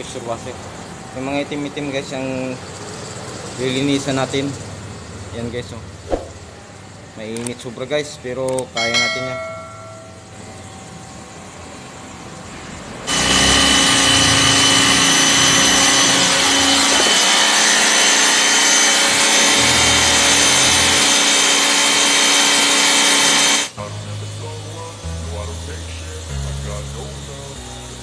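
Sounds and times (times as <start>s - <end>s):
pressure washer spraying concrete: 13.1s - 23.7s
pressure washer motor tone: 13.1s - 28.0s.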